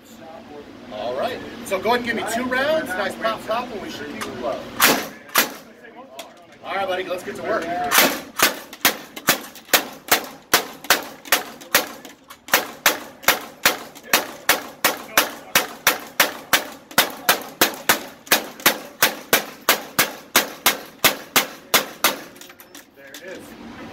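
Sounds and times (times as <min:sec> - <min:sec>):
gatling gun firing: 0:04.8 - 0:05.7, 0:07.9 - 0:22.4.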